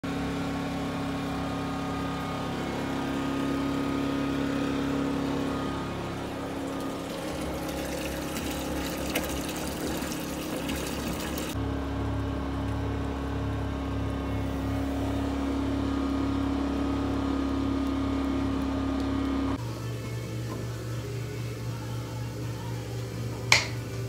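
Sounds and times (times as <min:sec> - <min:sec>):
portable generator running: 0:00.0 - 0:24.0
liquid pouring into plastic barrel: 0:06.4 - 0:11.6.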